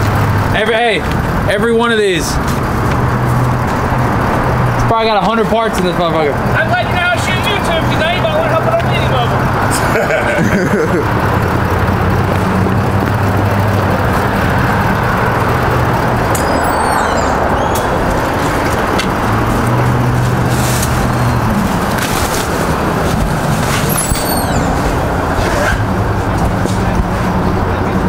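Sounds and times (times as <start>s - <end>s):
road traffic noise: 0.0s - 28.0s
vehicle engine idling: 0.0s - 28.0s
faint high chirps: 16.3s - 17.9s, 23.9s - 24.8s.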